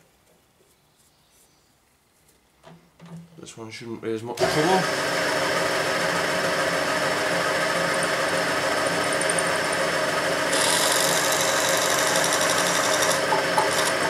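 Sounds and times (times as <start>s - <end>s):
drilling machine motor hum: 4.4s - 14.0s
drill bit chattering into metal: 10.5s - 14.0s.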